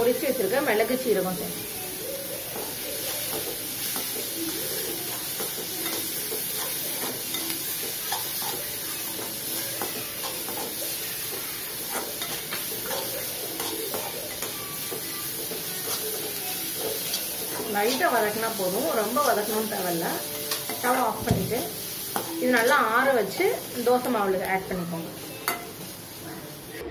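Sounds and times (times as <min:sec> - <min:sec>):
vegetables sizzling in oil: 0:00.0 - 0:26.9
metal spoon scraping pan: 0:02.6 - 0:21.2, 0:22.0 - 0:24.1.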